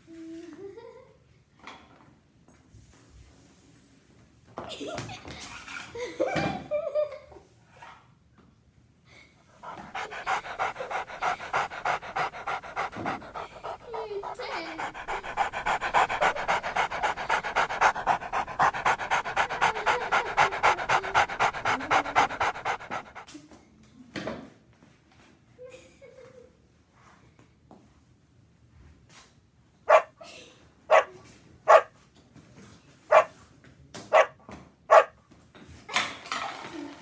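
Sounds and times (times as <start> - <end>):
dog panting fast: 9.5 - 23.3.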